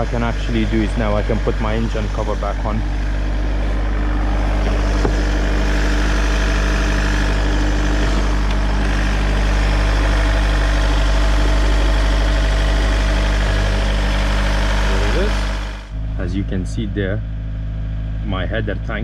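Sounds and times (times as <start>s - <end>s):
diesel engine fast idle: 0.0s - 19.0s.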